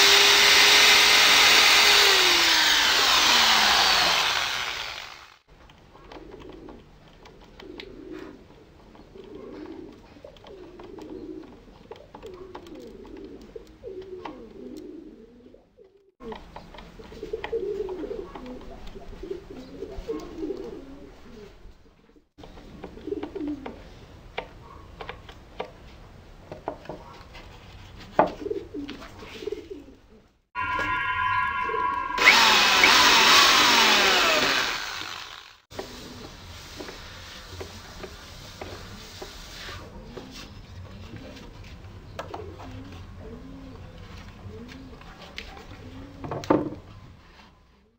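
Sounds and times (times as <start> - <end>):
electric drill boring into wood: 0.0 - 5.4, 32.2 - 35.7
pigeons cooing: 5.9 - 21.6, 22.5 - 24.0, 28.3 - 30.3, 42.1 - 46.4.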